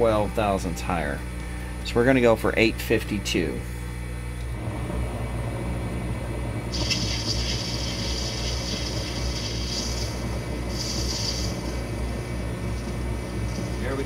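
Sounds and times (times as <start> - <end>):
cutting tool hissing on brass: 6.7 - 11.6.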